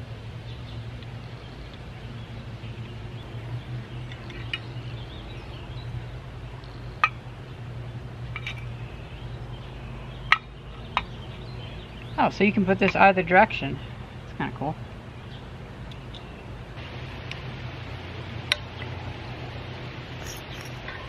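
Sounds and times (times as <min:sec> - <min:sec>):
metal parts clinking: 0:20.2 - 0:20.8.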